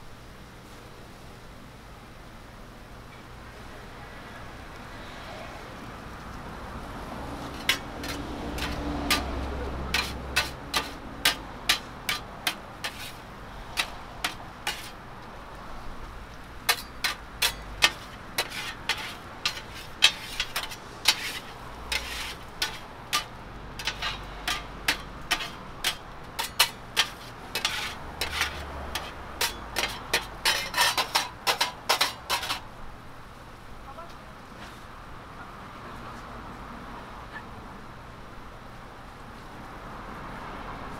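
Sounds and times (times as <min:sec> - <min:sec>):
metal scrapers clacking on griddle: 0:07.3 - 0:15.3, 0:16.0 - 0:32.8.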